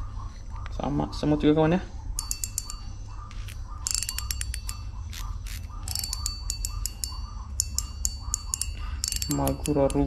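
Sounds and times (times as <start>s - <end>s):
fishing reel ratcheting clicks: 3.8s - 10.0s.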